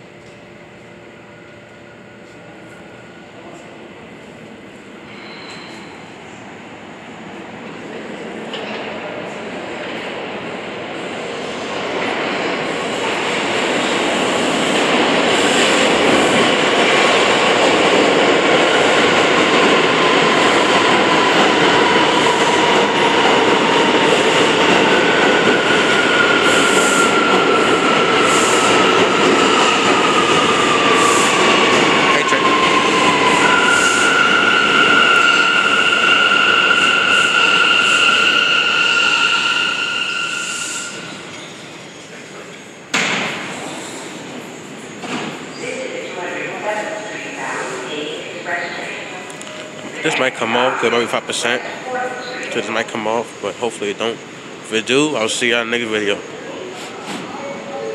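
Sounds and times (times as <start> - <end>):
subway train wheels rumbling on rail: 0.0 - 57.9
high wheel squeals: 5.1 - 6.1, 33.4 - 41.7.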